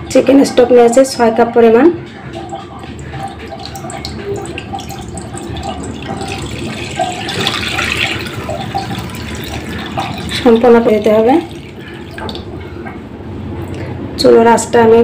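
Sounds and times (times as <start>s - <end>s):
liquid pouring into frying pan: 2.2s - 12.6s.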